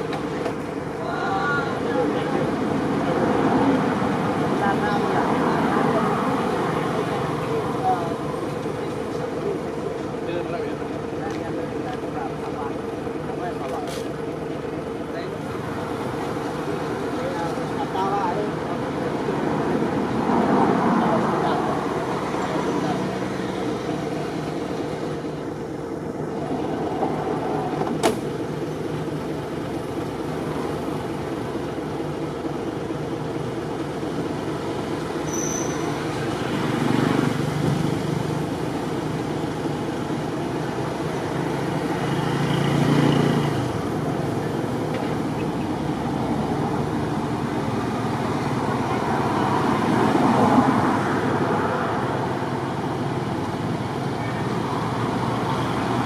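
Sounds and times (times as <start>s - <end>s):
road traffic passing: 0.0s - 56.0s.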